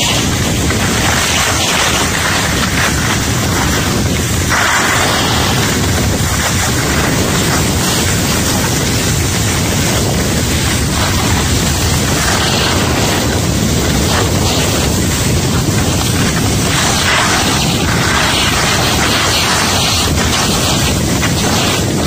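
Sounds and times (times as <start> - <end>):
skis sliding on snow: 0.0 - 22.0
wind rushing over microphone: 0.0 - 22.0.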